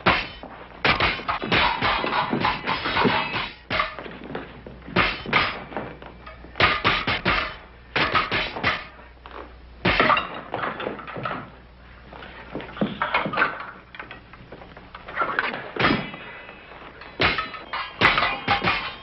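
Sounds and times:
fencing foils clashing and scraping: 0.0s - 19.0s.

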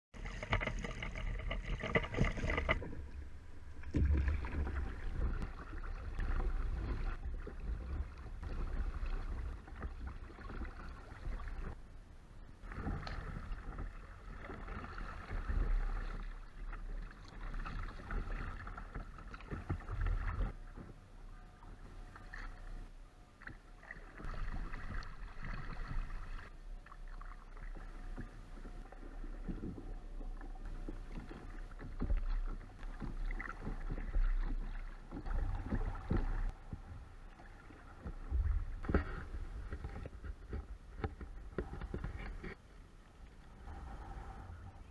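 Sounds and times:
water splashing and lapping: 0.1s - 11.8s, 12.6s - 44.9s
wind rumbling on microphone: 28.2s - 42.6s.

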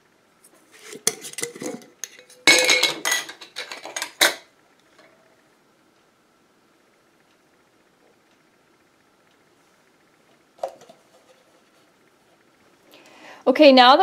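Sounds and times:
glass and metal kitchenware clinking: 1.2s - 4.4s.

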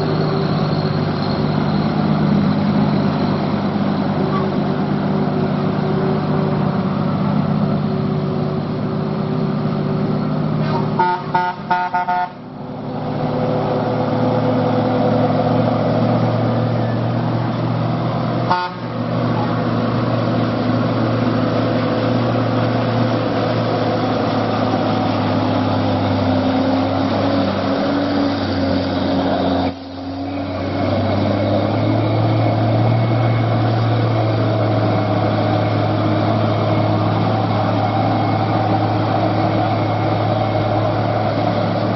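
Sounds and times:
heavy truck engines running: 0.0s - 41.9s
vehicle horn short toots: 10.7s - 12.4s, 18.5s - 18.9s.

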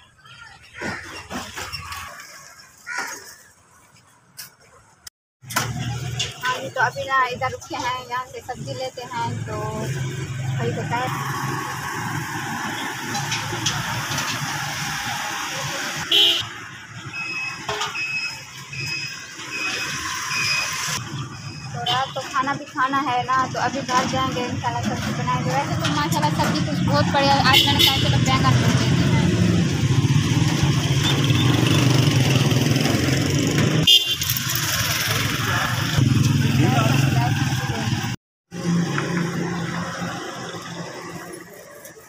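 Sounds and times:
street market background noise: 0.0s - 42.0s
motorcycles running: 5.6s - 17.7s, 18.4s - 42.0s
car horn beep: 16.0s - 16.5s, 21.7s - 22.3s, 27.5s - 28.3s, 31.0s - 31.9s, 33.8s - 34.4s.

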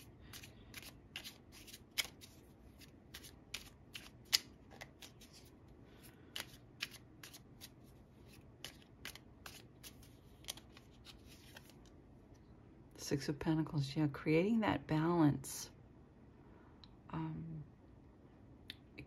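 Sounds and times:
cards being shuffled: 0.0s - 11.9s.

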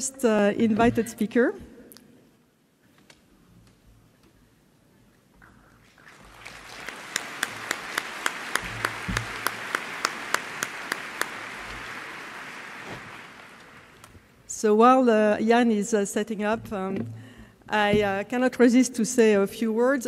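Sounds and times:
audience applauding: 6.0s - 14.3s
sharp claps at an even pace: 6.1s - 14.3s.

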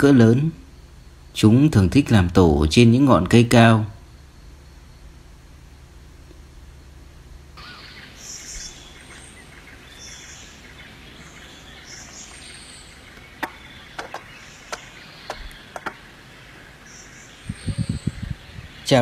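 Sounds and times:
high bird chirps: 7.6s - 19.0s
sharp clicks: 13.1s - 16.0s.

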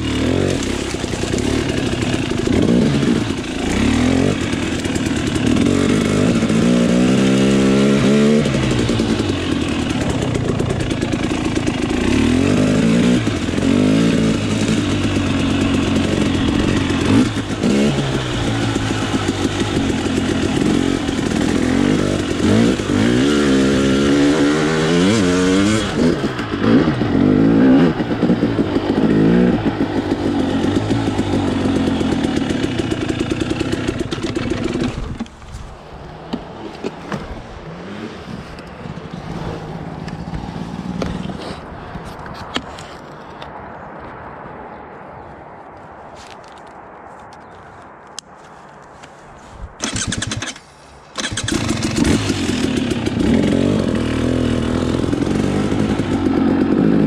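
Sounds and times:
motorcycle engine revving: 0.0s - 35.4s, 36.3s - 41.7s, 49.8s - 50.6s, 51.2s - 57.0s.

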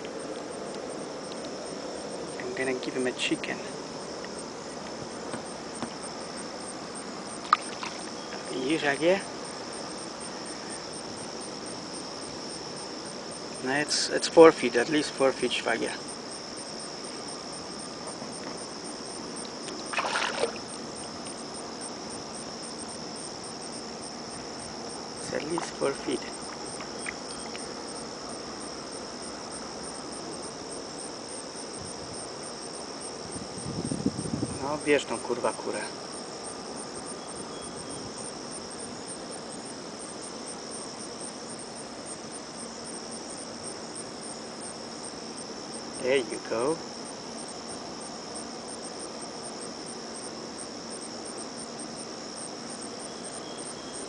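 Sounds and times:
faint background hiss: 0.0s - 54.0s
insects chirping: 0.0s - 54.0s
alligator splashing in water: 7.4s - 8.3s, 19.7s - 20.8s.

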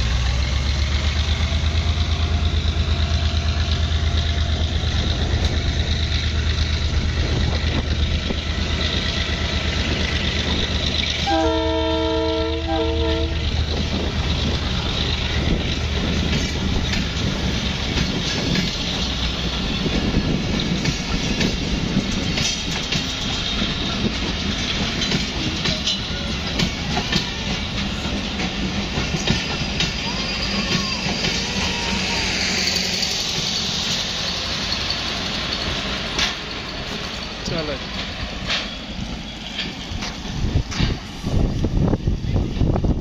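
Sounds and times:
locomotive engine drone: 0.0s - 43.0s
train coaches rumbling and clattering: 0.0s - 43.0s
train horn: 11.2s - 13.6s.

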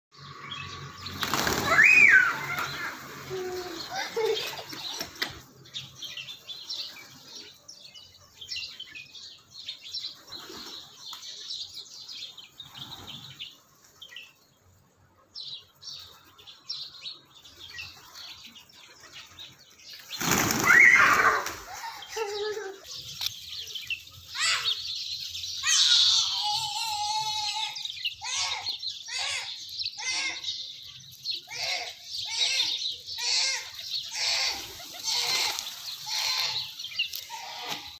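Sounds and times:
pigeon wings fluttering: 1.0s - 5.4s, 20.0s - 21.8s.

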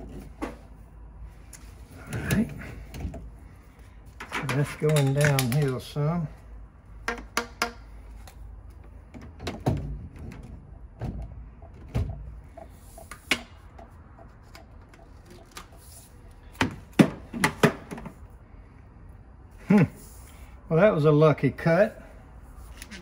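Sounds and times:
plastic pipe fittings knocking: 7.0s - 7.9s.

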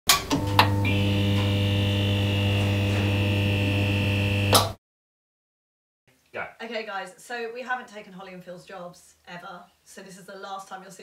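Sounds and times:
neon sign electrical hum: 0.1s - 4.8s.

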